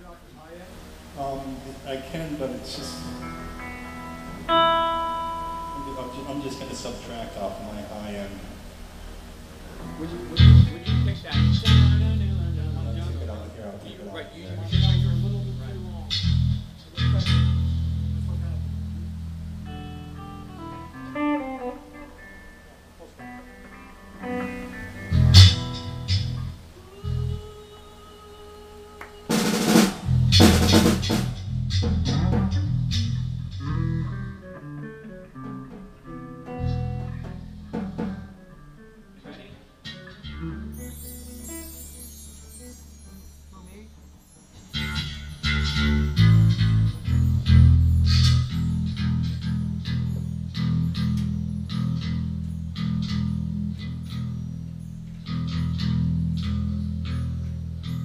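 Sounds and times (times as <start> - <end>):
rock band playing: 2.9 - 7.7, 8.5 - 13.2, 14.7 - 27.5, 29.3 - 39.1
held note: 2.9 - 8.7
low bass notes: 2.9 - 13.6, 14.5 - 21.7, 24.9 - 27.4, 30.0 - 34.8, 36.5 - 38.4, 44.8 - 58.0
drum kit fills: 14.7 - 27.5, 29.0 - 40.0.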